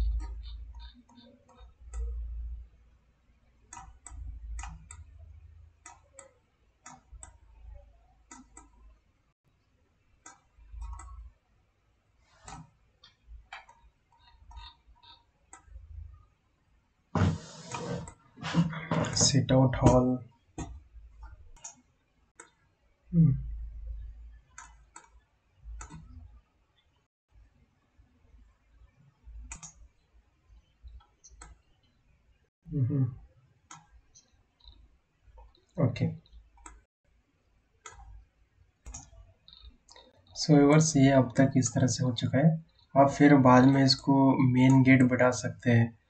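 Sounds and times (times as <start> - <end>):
computer mouse buttons clicking: 3.7 - 5.2, 10.2 - 11.2, 12.4 - 15.7, 25.8 - 26.2, 29.4 - 29.8.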